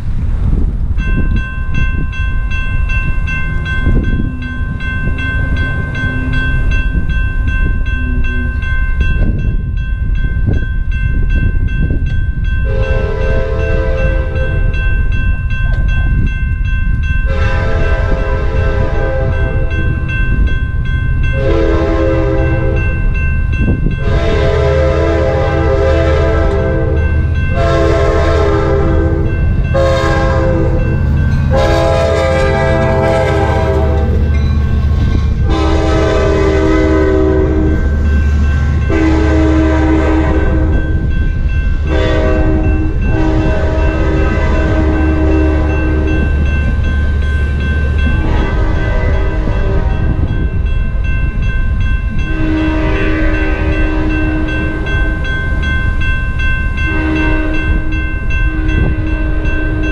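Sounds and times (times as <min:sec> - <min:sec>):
wind rumbling on microphone: 0:00.0 - 0:59.9
crossing bell ringing: 0:00.5 - 0:59.9
train horn blasts: 0:12.6 - 0:14.7, 0:17.3 - 0:20.0, 0:21.3 - 0:23.0, 0:24.0 - 0:34.4, 0:35.3 - 0:38.0, 0:38.8 - 0:41.0, 0:41.8 - 0:46.4, 0:48.0 - 0:50.4, 0:52.2 - 0:55.1, 0:56.8 - 0:59.9.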